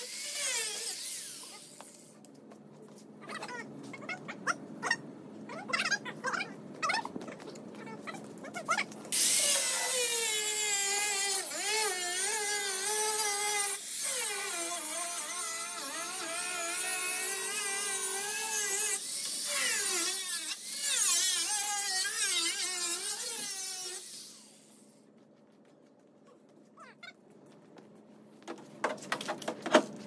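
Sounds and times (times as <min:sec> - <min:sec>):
power tool grinding metal: 0:00.0 - 0:02.0, 0:09.1 - 0:24.8.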